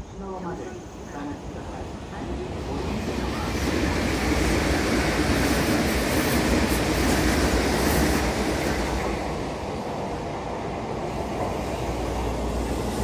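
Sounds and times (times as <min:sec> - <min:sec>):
train wheels rumbling on rails: 0:00.0 - 0:13.0.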